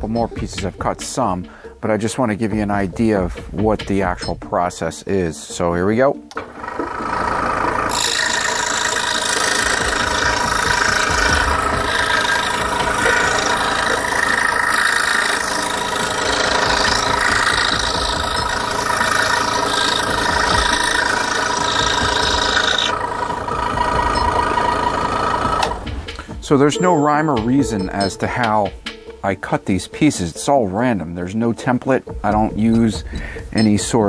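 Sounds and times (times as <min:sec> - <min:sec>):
scroll saw cutting wood: 0:06.3 - 0:26.4.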